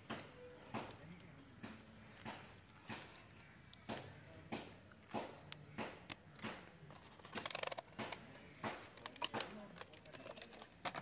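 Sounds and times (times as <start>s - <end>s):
soft clicks of wire connectors: 0.1s - 11.0s.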